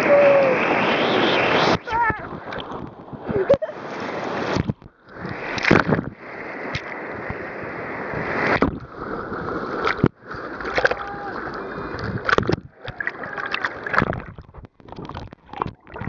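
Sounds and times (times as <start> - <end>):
sharp water splashes: 4.0 - 7.3, 8.3 - 16.0
river rapids rushing: 12.8 - 14.0.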